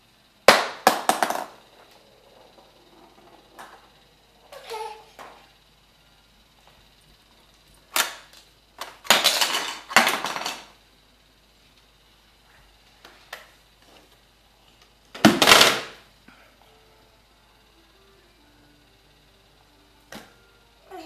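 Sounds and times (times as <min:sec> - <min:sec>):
toy dropping onto wood floor: 0:00.5 - 0:01.6, 0:07.9 - 0:10.8, 0:15.2 - 0:16.0
plastic toy clattering on fridge door: 0:07.9 - 0:10.7.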